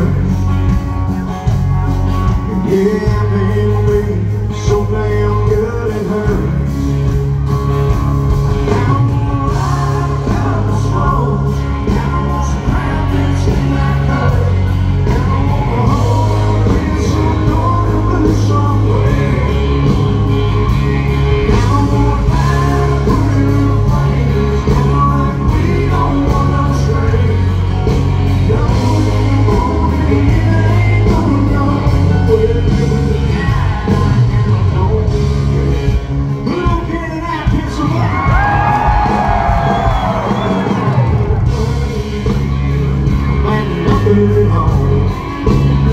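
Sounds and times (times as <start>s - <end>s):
man singing: 0.0s - 7.5s, 8.5s - 45.9s
heavy bass: 0.0s - 45.9s
live country band playing: 0.0s - 45.9s
steady drum beat: 0.0s - 45.9s.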